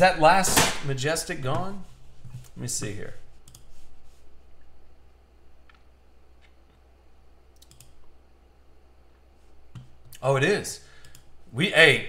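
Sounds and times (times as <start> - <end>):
steady low hum: 0.0 - 12.0
mouse and keyboard clicks: 7.6 - 8.0.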